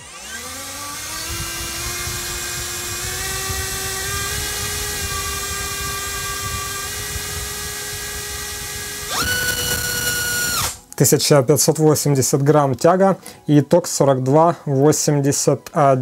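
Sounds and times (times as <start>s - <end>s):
brushless motor whine: 0.0s - 10.8s.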